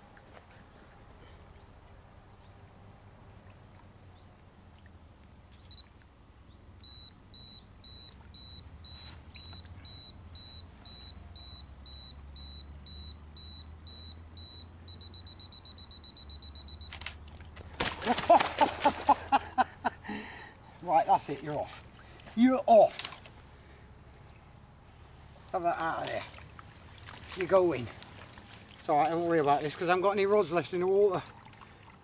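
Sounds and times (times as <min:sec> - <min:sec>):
camera self-timer beeping: 0:06.8 - 0:17.1
camera shutter click: 0:16.9 - 0:17.2
fish thrashing splashing water: 0:17.2 - 0:19.5, 0:21.8 - 0:23.5, 0:25.6 - 0:29.8.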